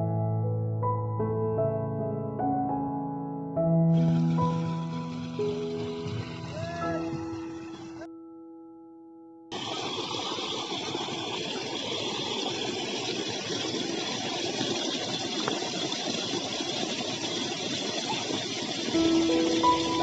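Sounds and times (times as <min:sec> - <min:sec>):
water pouring into a pond: 0:04.0 - 0:08.1, 0:09.5 - 0:20.0.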